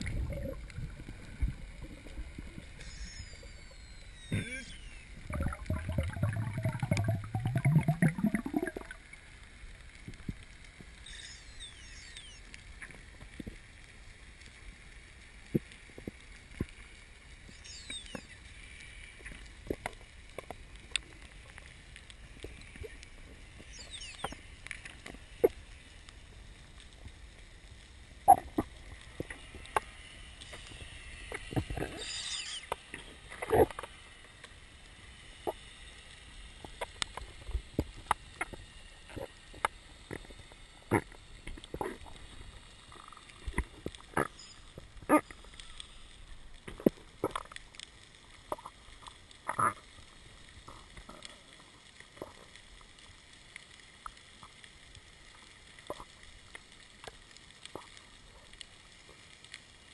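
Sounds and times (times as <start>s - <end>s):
underwater water rush: 0.0s - 11.0s.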